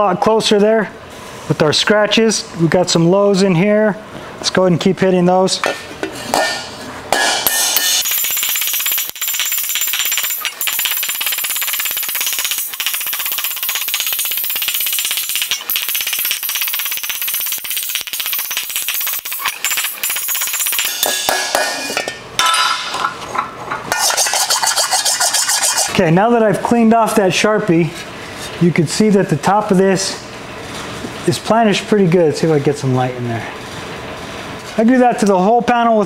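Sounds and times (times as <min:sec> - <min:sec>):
spoon hammering sheet metal: 0:05.6 - 0:23.1, 0:23.9 - 0:26.0.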